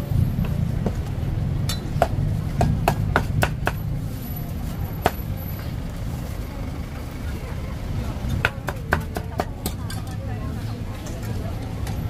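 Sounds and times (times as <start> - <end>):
cleaver chopping on wooden board: 2.0 - 3.8.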